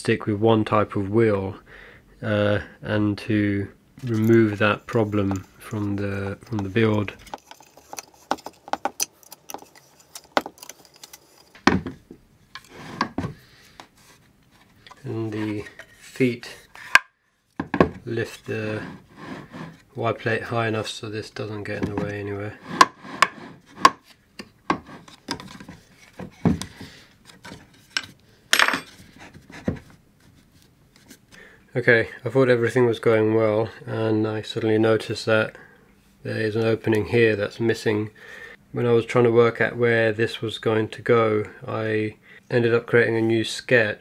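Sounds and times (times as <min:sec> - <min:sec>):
plastic and metal parts knocking: 0:06.4 - 0:12.1.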